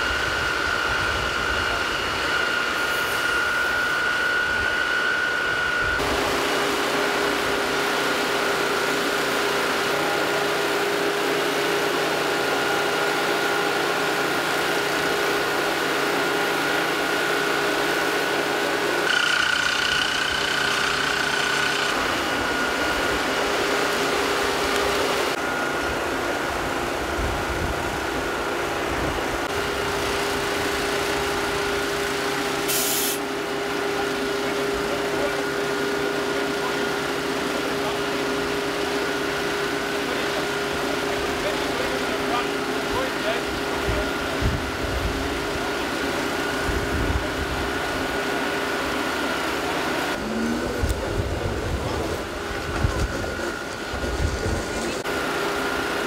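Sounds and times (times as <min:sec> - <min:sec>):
fire engine and pump droning: 0:00.0 - 0:56.0
short hiss: 0:32.7 - 0:33.2.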